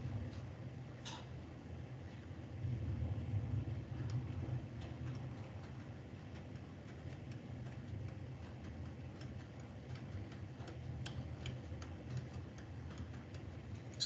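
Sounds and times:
steady low hum: 0:00.0 - 0:14.0
faint ticks and clicks: 0:03.6 - 0:14.0.

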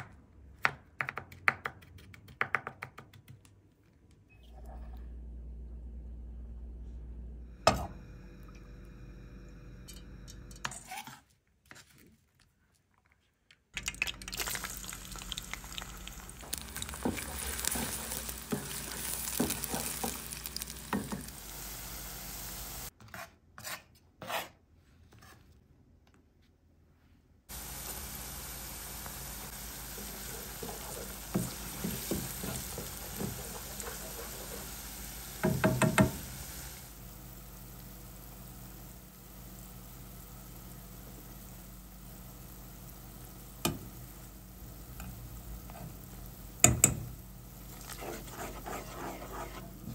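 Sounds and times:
food sizzling in oil: 0:13.8 - 0:22.9, 0:27.5 - 0:49.9
spoon stirring and knocking pan: 0:16.5 - 0:21.3, 0:29.9 - 0:36.3, 0:46.6 - 0:47.2, 0:47.8 - 0:49.9.

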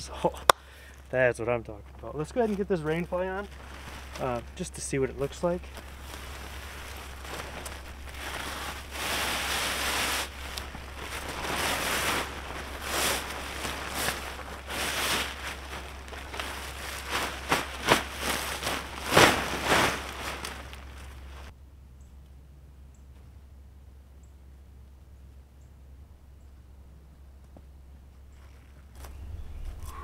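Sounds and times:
tent fabric rustling: 0:02.0 - 0:21.5
fabric flapping: 0:02.4 - 0:21.5.

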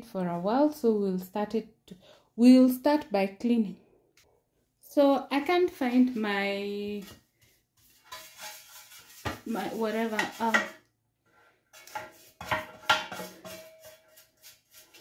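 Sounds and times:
person's voice: 0:04.9 - 0:07.1, 0:09.5 - 0:10.7
pastry brush scraping pan: 0:06.4 - 0:15.0.

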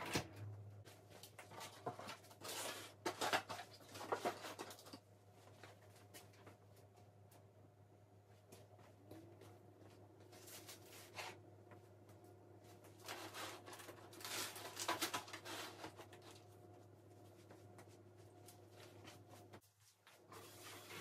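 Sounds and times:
rubbing and rustling while cleaning: 0:10.2 - 0:21.0.

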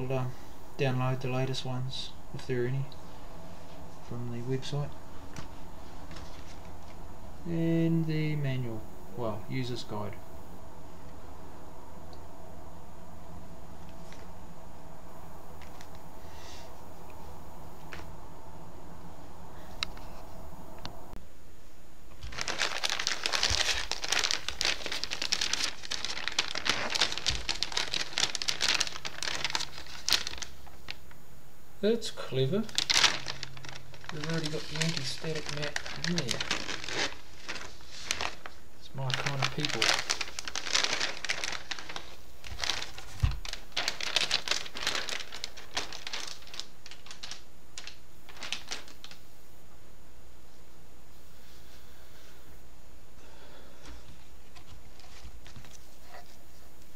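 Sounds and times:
plastic bag crinkling: 0:22.1 - 0:31.2, 0:32.4 - 0:49.3.

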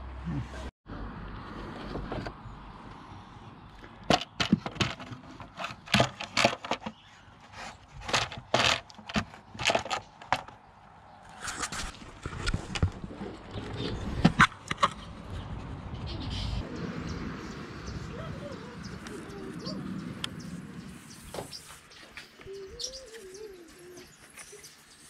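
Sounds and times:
plastic cover knocking and scraping: 0:04.0 - 0:07.0, 0:08.0 - 0:10.6.

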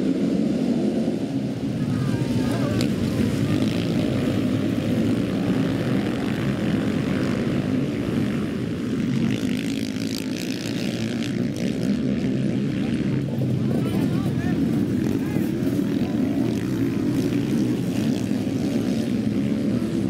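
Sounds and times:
motorcycle engines running hard: 0:00.0 - 0:20.0.

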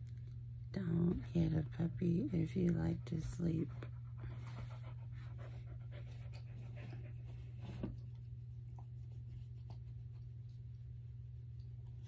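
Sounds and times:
steady low hum: 0:00.0 - 0:12.0
puppy panting: 0:01.7 - 0:07.8.

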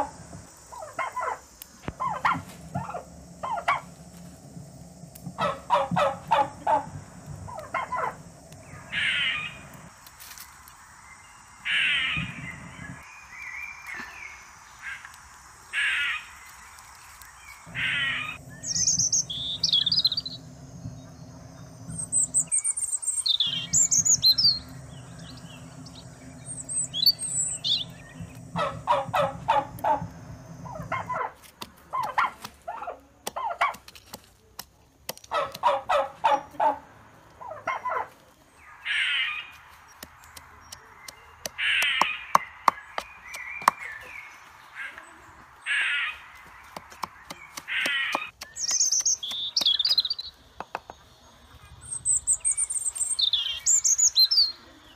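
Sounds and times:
birds chirping: 0:00.0 - 0:32.9, 0:35.3 - 0:54.9.

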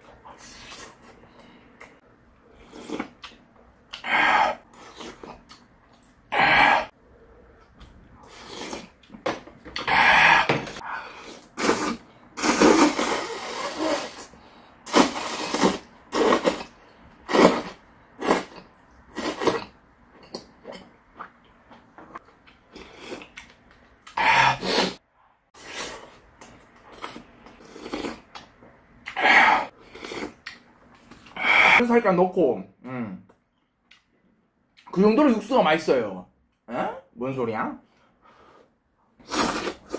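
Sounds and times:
slurping food: 0:08.2 - 0:09.0, 0:09.8 - 0:19.7, 0:24.1 - 0:25.0, 0:25.6 - 0:26.2, 0:39.2 - 0:39.9.

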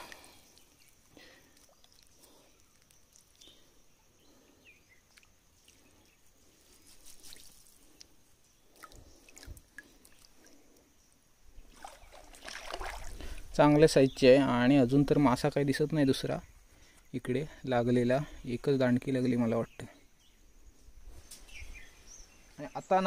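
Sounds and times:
water splashes: 0:00.0 - 0:03.6, 0:08.7 - 0:10.6, 0:11.6 - 0:13.6
water trickling in a stream: 0:00.0 - 0:13.8.

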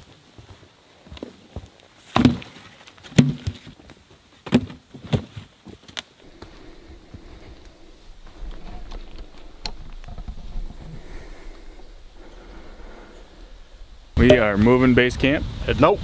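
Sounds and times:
logs thudding onto a pile: 0:02.1 - 0:03.7.

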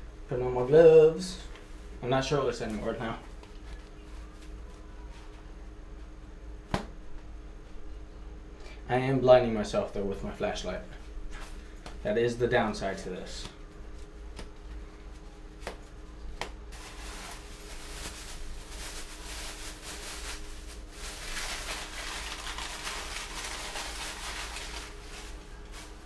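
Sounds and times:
bag rustling and crinkling: 0:16.7 - 0:26.0.

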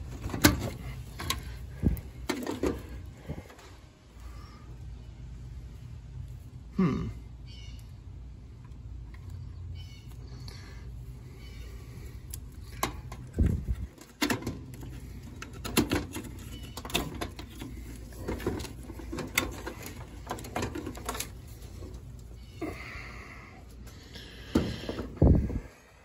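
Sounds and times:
steady low hum: 0:00.0 - 0:26.0
wire rustling: 0:08.5 - 0:22.9.

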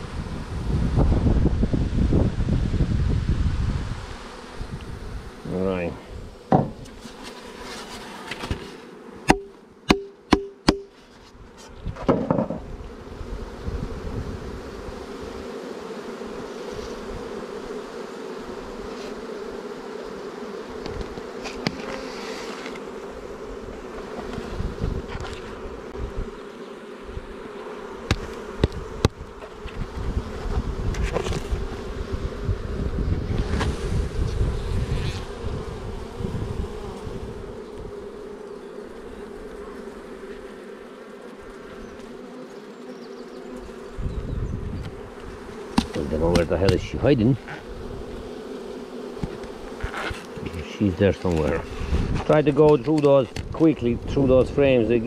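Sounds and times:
honeybees humming: 0:00.0 - 0:55.0
sharp knocks: 0:06.5 - 0:06.9, 0:09.3 - 0:10.9.

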